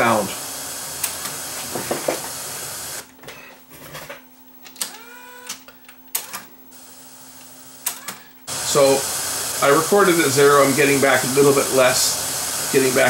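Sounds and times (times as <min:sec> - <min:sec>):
radio white noise hiss: 0:00.0 - 0:03.0, 0:08.5 - 0:13.0
faint motor hum: 0:00.0 - 0:13.0.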